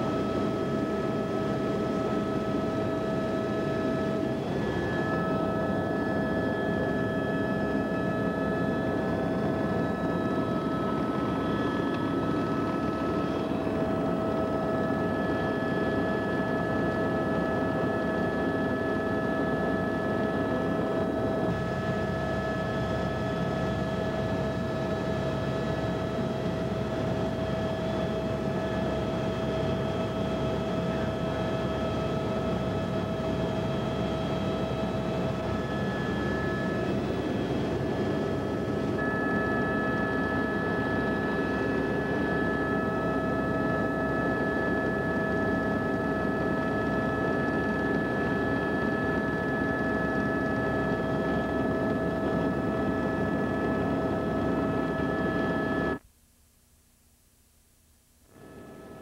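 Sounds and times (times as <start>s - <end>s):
aircraft engine drone: 0.0s - 56.0s, 58.3s - 59.0s
whining tones: 3.6s - 16.5s, 34.7s - 56.0s.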